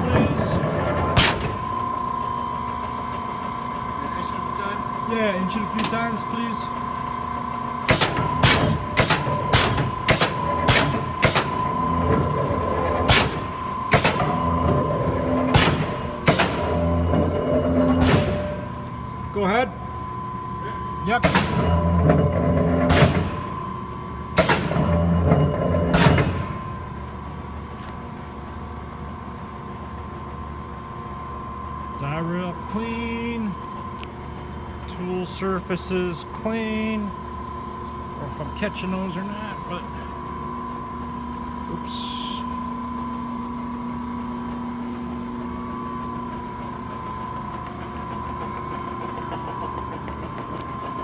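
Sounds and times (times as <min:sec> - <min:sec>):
faint high whine: 0:00.0 - 0:22.4, 0:34.9 - 0:47.4
machine low hum: 0:00.0 - 0:51.0.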